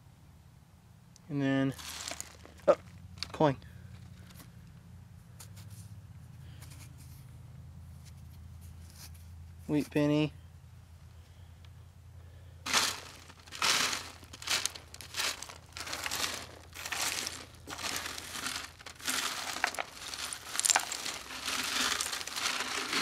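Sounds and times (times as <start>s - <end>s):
soil scraping on wire mesh: 12.7s - 23.0s.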